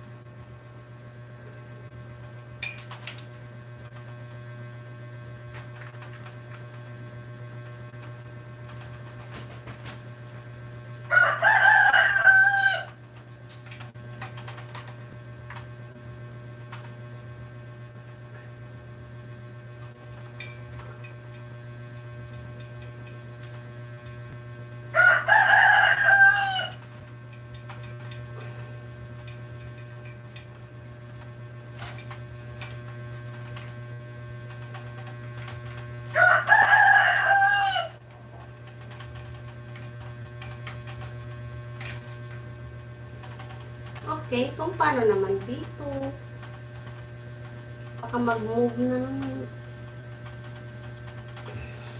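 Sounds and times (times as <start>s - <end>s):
steady low hum: 0.0s - 51.9s
rooster crowing: 11.1s - 13.0s, 24.9s - 26.9s, 36.1s - 38.0s.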